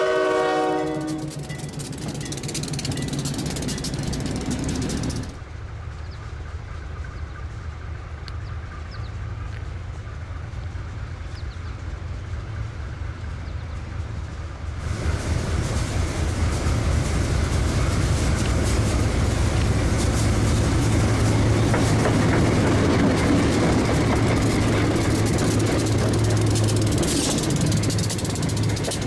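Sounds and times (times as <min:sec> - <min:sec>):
diesel locomotives drumming: 0:00.0 - 0:29.0
train wheels clattering over rails: 0:00.4 - 0:06.2, 0:08.4 - 0:29.0.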